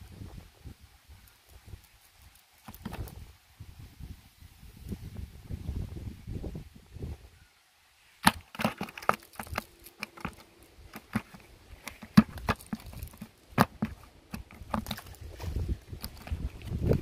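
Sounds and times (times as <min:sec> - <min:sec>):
fish flapping in plastic bucket: 0:08.2 - 0:17.0
net rustling: 0:08.2 - 0:17.0.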